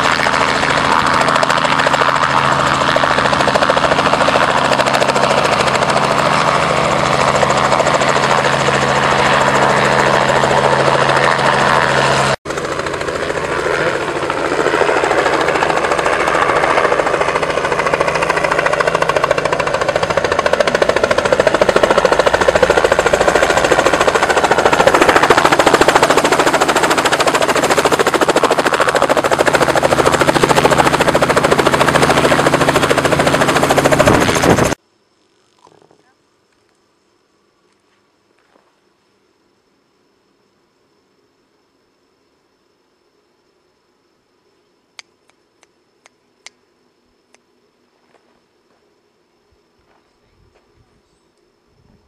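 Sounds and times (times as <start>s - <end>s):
helicopter rotor and engine: 0.0s - 34.8s.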